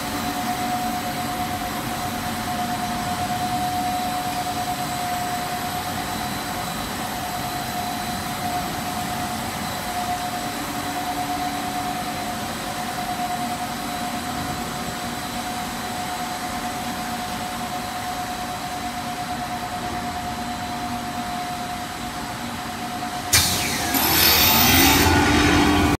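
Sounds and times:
machinery hum with motor whine: 0.0s - 26.0s
loud rushing machine noise: 23.3s - 26.0s.

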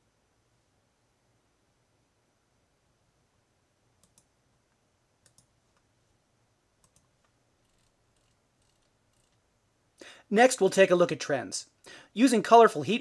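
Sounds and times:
computer mouse clicks: 4.0s - 4.3s, 5.2s - 5.9s, 6.8s - 9.4s
mouse scroll wheel ticks: 6.8s - 9.4s.

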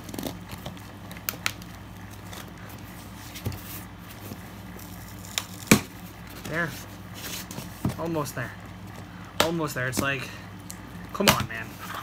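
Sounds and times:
tape and cardboard crackling: 0.0s - 8.2s.

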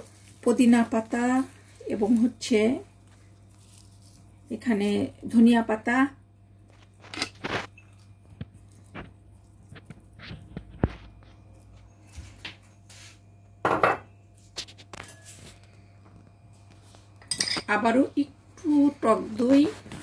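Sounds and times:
steady low hum: 0.0s - 20.0s
dishes clattering: 13.7s - 14.1s
utensils and dishes clinking: 17.2s - 17.8s.

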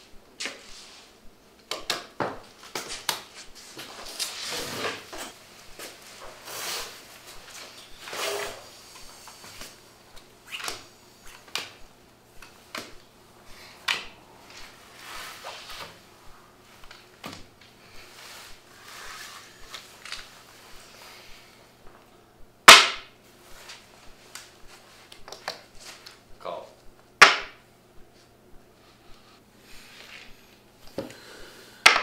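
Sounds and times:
sharp crack: 22.6s - 23.1s.

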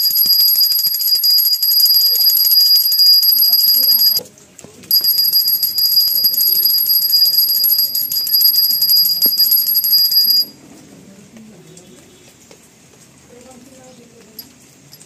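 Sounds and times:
hand bell ringing rapidly: 0.0s - 4.2s, 4.9s - 10.5s.

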